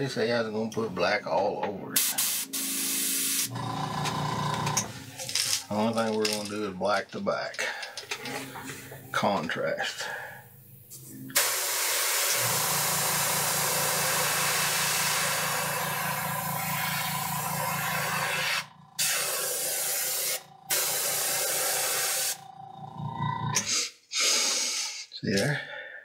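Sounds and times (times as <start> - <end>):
airbrush spraying hiss: 2.0 - 3.5, 11.0 - 22.4
low pulsing hum: 8.1 - 11.4.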